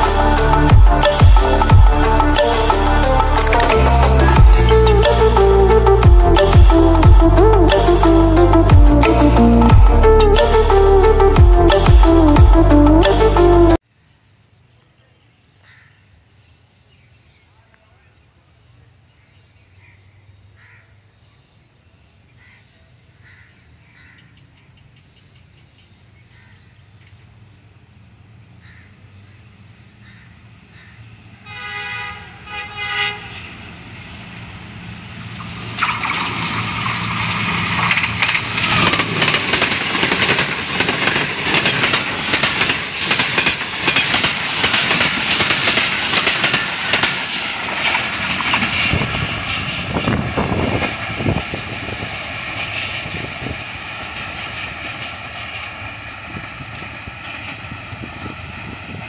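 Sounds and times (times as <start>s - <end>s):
locomotive engine drone: 0.0s - 13.8s, 27.3s - 59.0s
train horn: 31.4s - 33.9s
train wheels clattering over rails: 35.3s - 59.0s.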